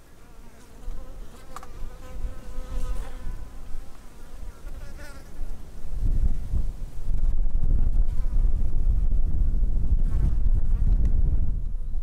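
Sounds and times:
insect buzzing: 0:00.0 - 0:06.4.

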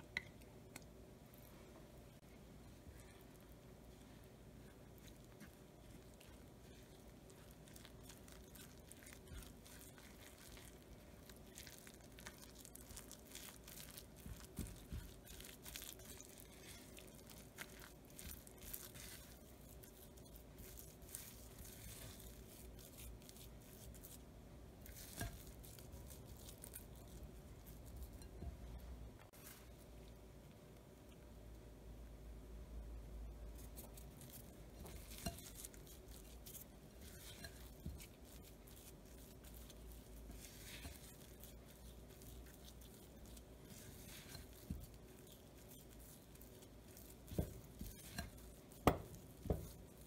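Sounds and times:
spatula scraping dough in bowl: 0:04.7 - 0:24.2, 0:24.8 - 0:28.8, 0:33.6 - 0:50.0
spatula tapping bowl: 0:34.8 - 0:39.7, 0:46.9 - 0:49.9.

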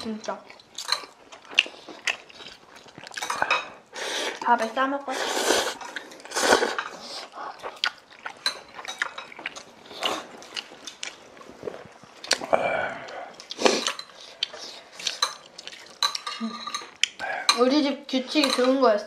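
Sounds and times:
utensils clinking against dishes: 0:03.2 - 0:03.8, 0:15.1 - 0:17.7, 0:18.3 - 0:18.9
slurping noodles and soup: 0:05.1 - 0:07.9, 0:11.6 - 0:15.2.

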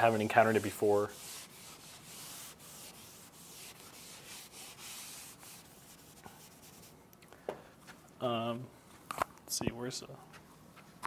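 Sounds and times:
eraser rubbing on blackboard: 0:00.0 - 0:07.0.

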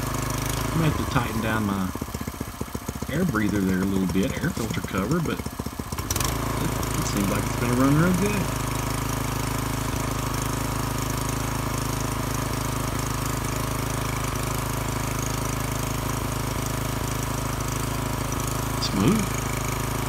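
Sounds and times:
four-stroke engine running steadily: 0:00.0 - 0:20.0.

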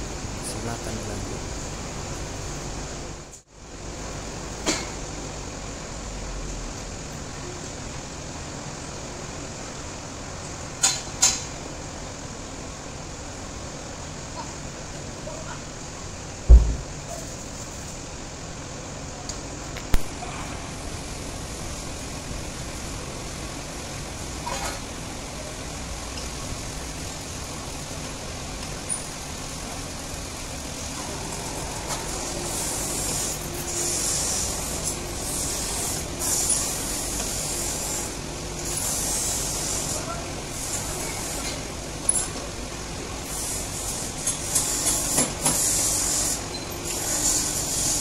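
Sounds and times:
sharp knock: 0:16.5 - 0:16.9.

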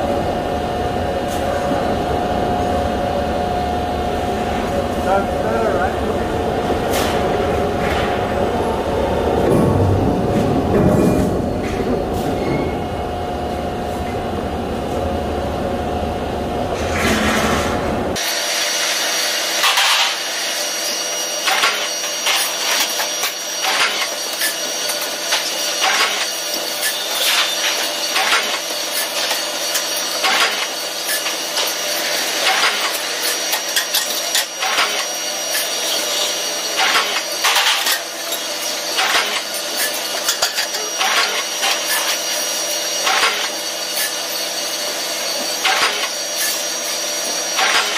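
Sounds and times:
machine hum: 0:00.0 - 0:47.9
deep rumble: 0:07.4 - 0:12.1.

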